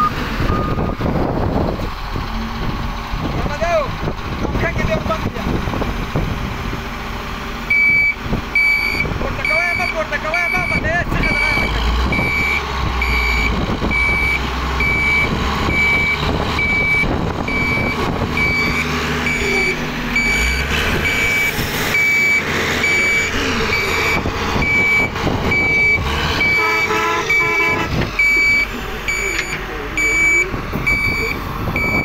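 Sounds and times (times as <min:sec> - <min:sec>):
back-up alarm beeping: 0:00.0 - 0:01.0, 0:07.7 - 0:32.0
diesel engines running: 0:00.0 - 0:32.0.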